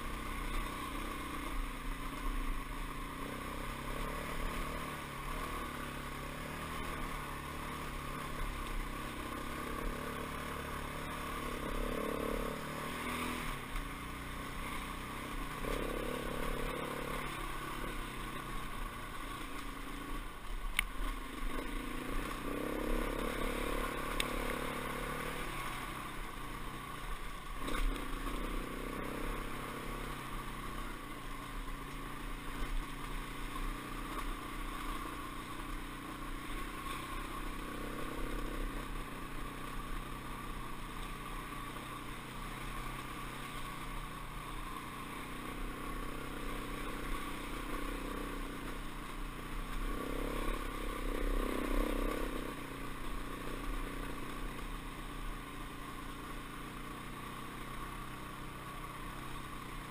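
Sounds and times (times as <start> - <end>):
dirt bike engine revving: 3.0 - 20.2, 21.0 - 26.3, 27.1 - 31.0, 36.4 - 41.8, 42.4 - 54.7.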